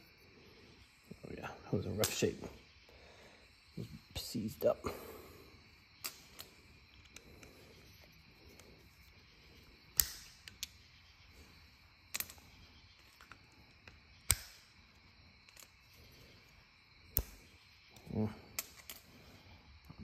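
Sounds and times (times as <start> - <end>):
sharp metal clicks: 6.0 - 7.6, 9.9 - 10.9, 12.1 - 14.8, 17.1 - 17.4, 18.0 - 19.1.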